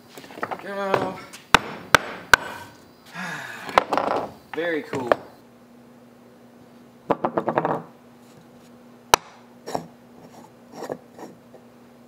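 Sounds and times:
wooden pieces knocking on table: 3.7s - 4.3s, 7.1s - 7.9s.

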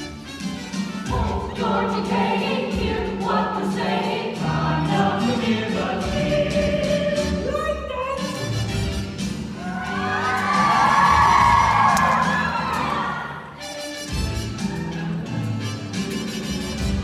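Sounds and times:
instrumental accompaniment with beat: 0.0s - 7.4s, 13.6s - 17.0s
ensemble singing in chorus: 1.1s - 7.5s.

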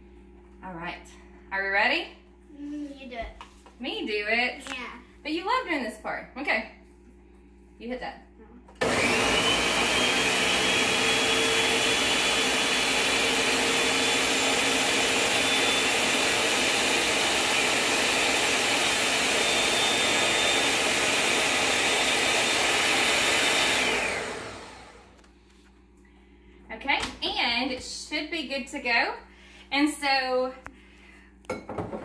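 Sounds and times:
blender motor whining: 8.8s - 25.2s.

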